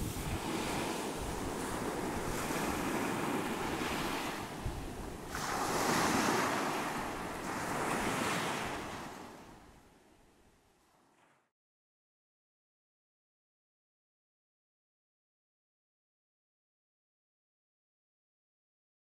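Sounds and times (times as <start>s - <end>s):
waves washing in: 0.0s - 10.0s.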